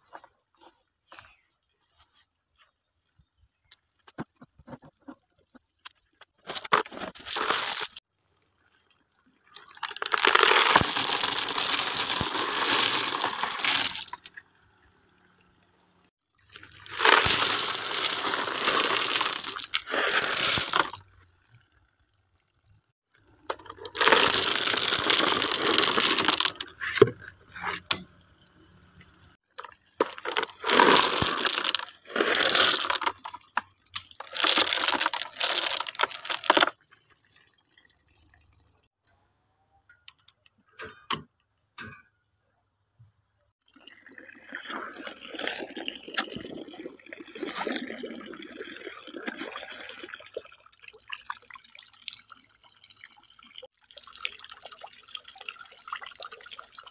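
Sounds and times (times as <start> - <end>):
rocks poured into plastic bucket: 6.4 - 8.0, 9.5 - 14.3, 16.5 - 21.0, 23.4 - 28.0, 29.6 - 36.8
stones knocking: 30.0 - 33.3
water splashing into pond: 43.6 - 56.9.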